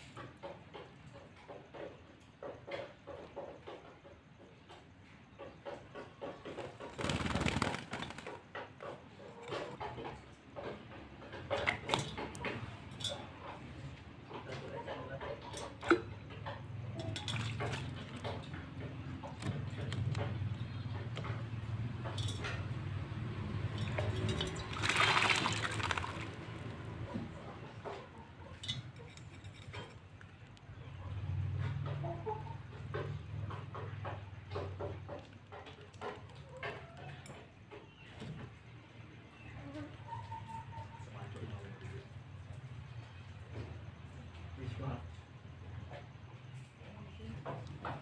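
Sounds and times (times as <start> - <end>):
bird splashing and fluttering: 6.4 - 8.8, 17.0 - 27.4
bird splashing in water: 17.2 - 18.4, 23.7 - 26.9.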